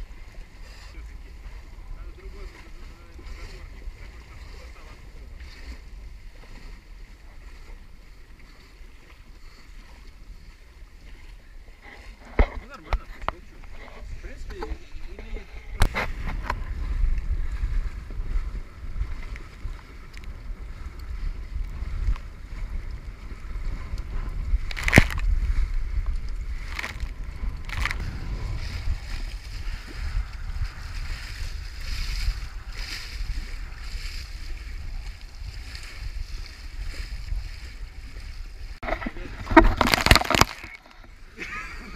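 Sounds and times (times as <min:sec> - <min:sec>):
water rushing along hull: 0:00.0 - 0:41.9
wind buffeting microphone: 0:00.0 - 0:41.9.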